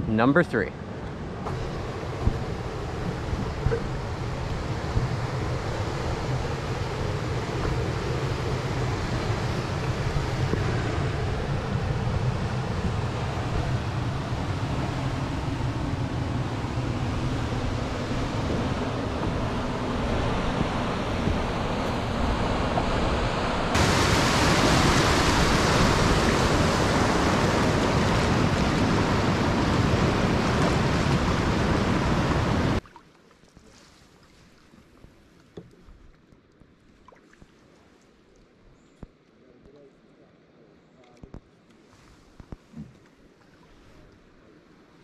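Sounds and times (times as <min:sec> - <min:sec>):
river rapids rushing: 0:16.7 - 0:32.8.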